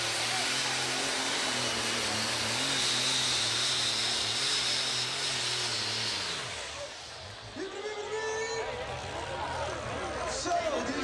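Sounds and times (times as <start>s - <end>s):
diesel tractor engine under load: 0.0s - 8.1s.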